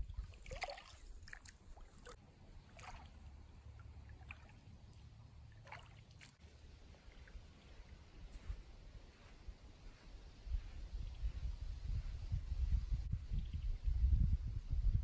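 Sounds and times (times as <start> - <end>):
feet splashing in shallow water: 0.0 - 8.8.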